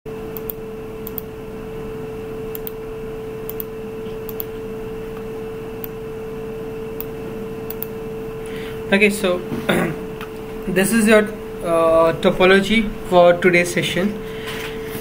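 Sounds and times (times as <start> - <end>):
electrical hum: 0.1 - 15.0
computer mouse clicks: 0.3 - 1.3, 2.5 - 2.8, 3.5 - 4.5, 7.0 - 8.0.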